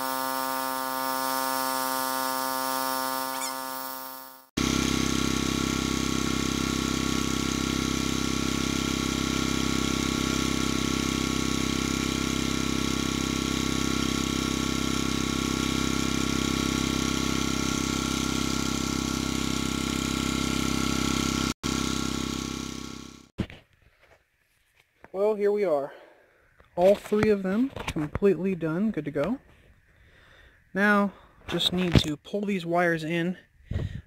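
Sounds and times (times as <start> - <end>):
heat gun fan blowing: 0.0 - 23.3.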